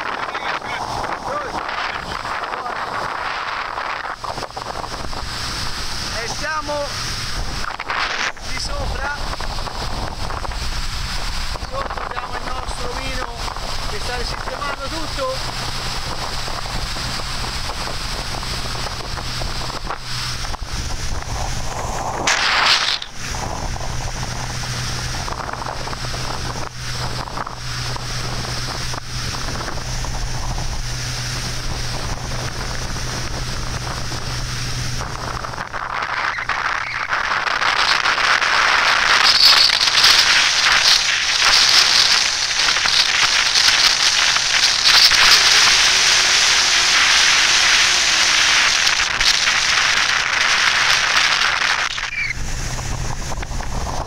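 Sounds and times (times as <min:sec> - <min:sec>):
motorboat engine hum: 0:00.0 - 0:54.0
water noise: 0:00.0 - 0:54.0
wind on microphone: 0:00.0 - 0:54.0.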